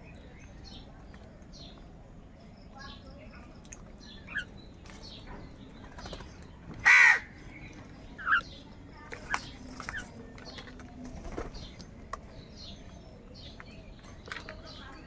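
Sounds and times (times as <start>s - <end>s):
crows cawing: 6.8s - 7.4s.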